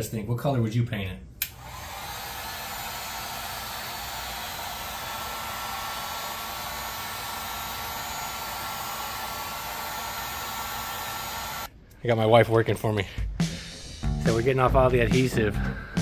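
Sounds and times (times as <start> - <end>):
heat gun blowing hot air: 1.4 - 11.7.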